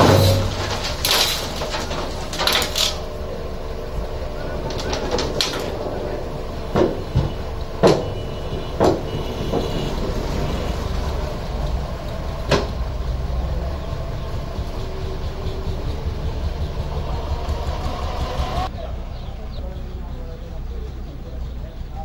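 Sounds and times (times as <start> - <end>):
diesel truck engine running: 0.0 - 22.0
sharp knocks: 6.7 - 10.1, 12.4 - 13.2.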